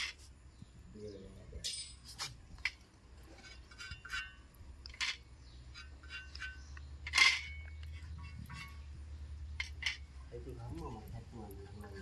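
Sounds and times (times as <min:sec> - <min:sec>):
metallic clink and ring: 0:01.6 - 0:02.1.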